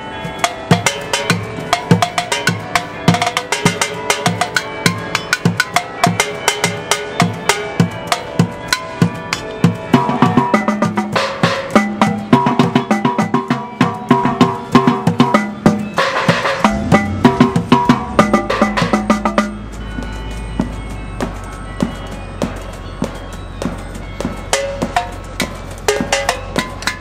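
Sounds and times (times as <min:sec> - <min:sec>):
junk percussion ensemble: 0:00.0 - 0:27.0
pitched held notes: 0:00.0 - 0:27.0.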